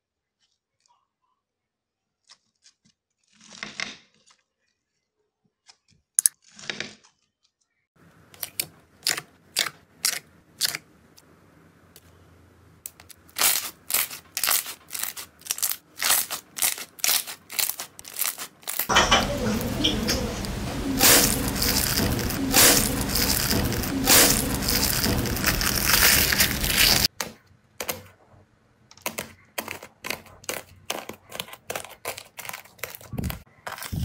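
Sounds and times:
crunchy slime crackling: 12.9s - 19.0s, 20.9s - 27.1s, 29.1s - 34.0s.

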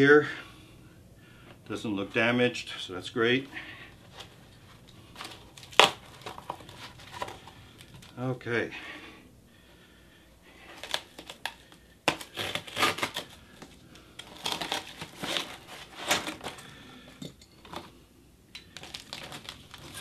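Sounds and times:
packaging crinkling and rustling: 3.9s - 8.2s, 10.6s - 16.8s, 18.7s - 20.0s.

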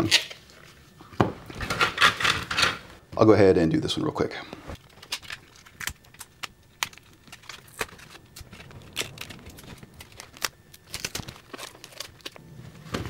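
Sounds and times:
tape peeling and crinkling: 4.8s - 13.0s.

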